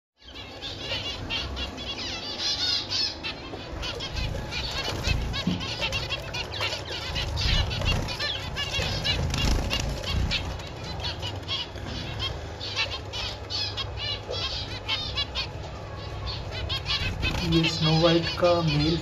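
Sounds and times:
finches chirping: 0.2s - 19.0s
wings fluttering: 3.3s - 15.2s, 16.5s - 18.0s.

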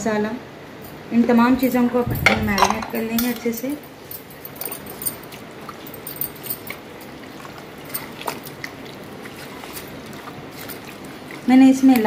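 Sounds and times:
wet squelching of marinade: 4.5s - 12.0s.

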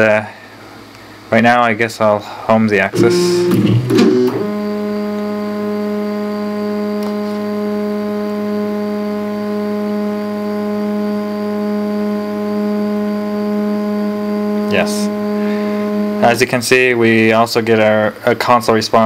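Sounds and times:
stepper motors whining: 3.0s - 17.9s.

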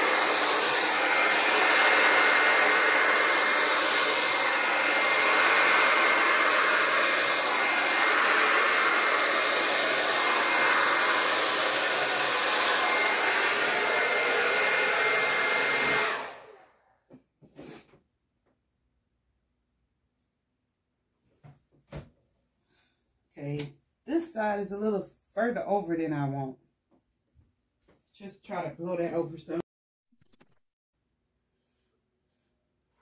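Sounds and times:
hair dryer running: 0.0s - 16.8s.

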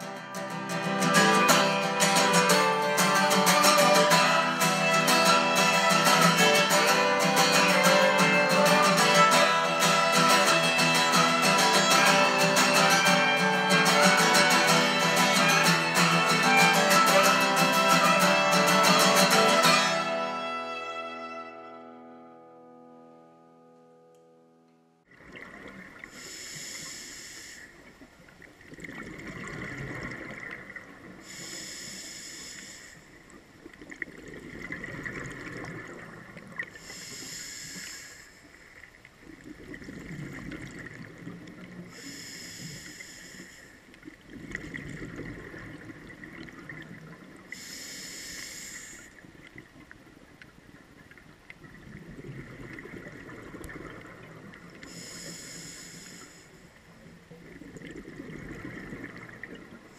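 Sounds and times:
exhaled air bubbling underwater: 25.1s - 59.9s
regulator hiss on inhale: 26.0s - 28.1s, 31.2s - 33.4s, 36.7s - 38.9s, 41.9s - 44.1s, 47.5s - 49.4s, 54.8s - 57.1s.

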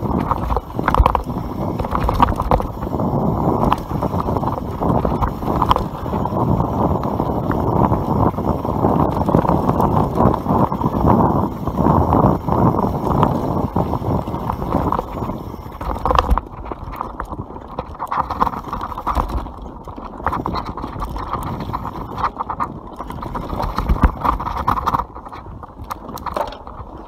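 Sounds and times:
bike rattling over bumps: 0.0s - 27.0s
bike tyres rolling on dirt: 0.0s - 27.0s
wind on microphone: 0.0s - 27.0s.

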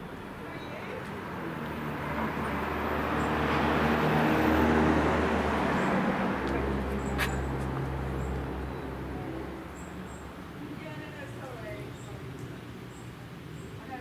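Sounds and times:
car driving past: 1.2s - 9.7s.

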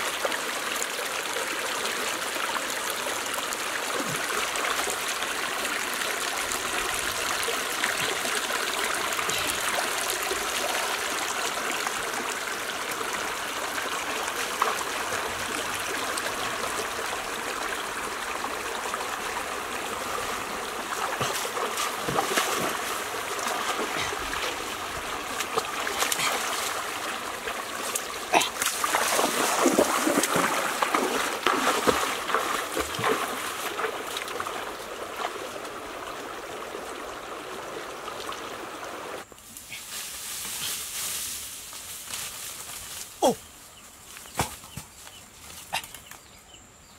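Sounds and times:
stream running over rocks: 0.0s - 39.4s
splashes of wading: 3.4s - 39.2s.

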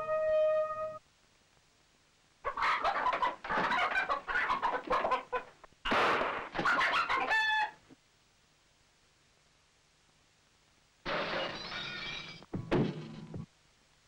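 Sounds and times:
hen clucking: 2.4s - 5.6s, 6.6s - 7.8s
hen squawking: 6.6s - 7.8s.

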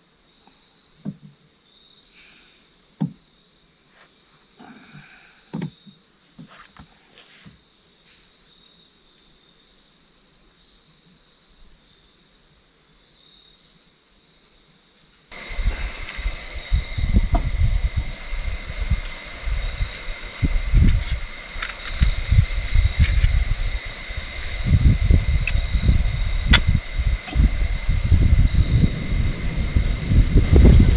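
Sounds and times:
insects trilling: 0.0s - 30.9s
uneven low rumbling and knocks: 15.4s - 30.9s.

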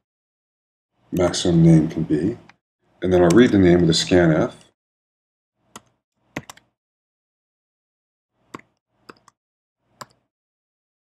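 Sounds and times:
keyboard keystroke clicks: 5.8s - 6.7s, 8.5s - 9.4s.

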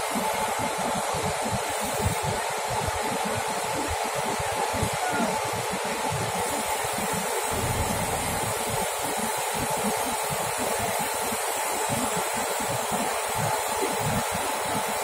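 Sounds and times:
faint steady whine: 0.0s - 15.0s
wind buffeting microphone: 3.7s - 10.9s
crane engine running: 7.4s - 9.8s.

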